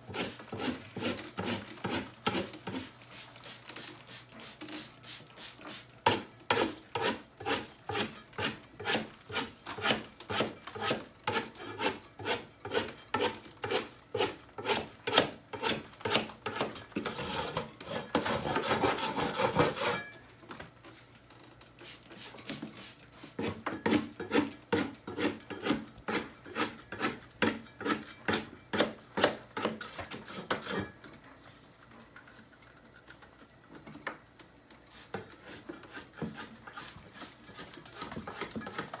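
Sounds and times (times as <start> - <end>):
putty knife scraping ceiling: 0.1 - 2.9, 5.7 - 20.1, 21.9 - 31.0, 35.0 - 39.0.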